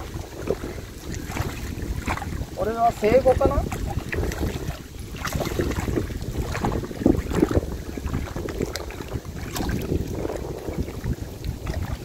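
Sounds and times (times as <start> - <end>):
wind rumbling on microphone: 0.0 - 12.0
fish splashing at water surface: 3.6 - 12.0.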